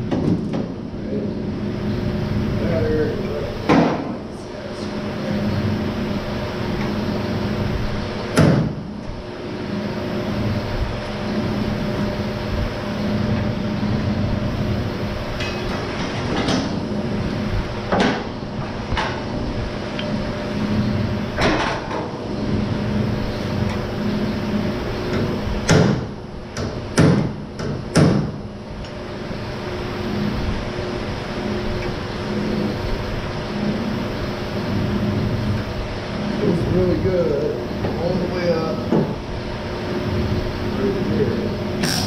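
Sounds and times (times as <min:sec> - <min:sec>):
low machine hum: 0:00.0 - 0:42.0
metal knocks on sheet metal: 0:25.6 - 0:28.4.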